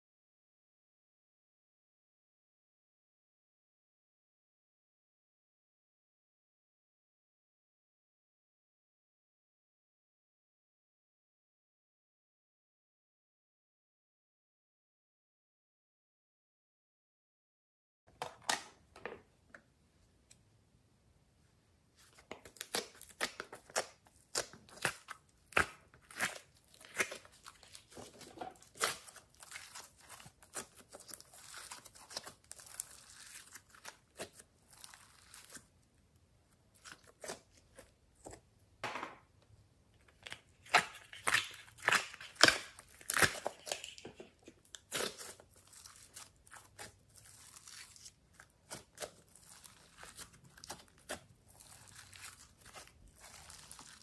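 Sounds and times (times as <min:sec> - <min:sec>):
slime crackling and popping: 0:28.6 - 0:35.6, 0:40.6 - 0:43.8, 0:44.8 - 0:54.0.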